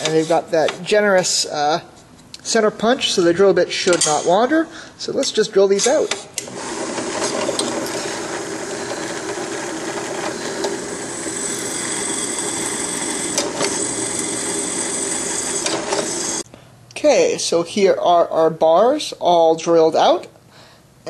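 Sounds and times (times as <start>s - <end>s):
drill press drilling metal: 6.4s - 16.4s
thin high whine: 10.1s - 16.4s.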